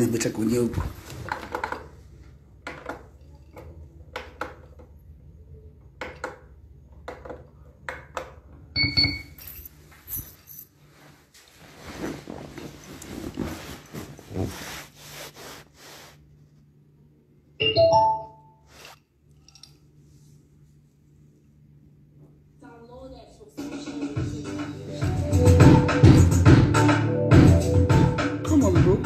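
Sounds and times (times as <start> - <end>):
rustling: 9.5 - 16.7.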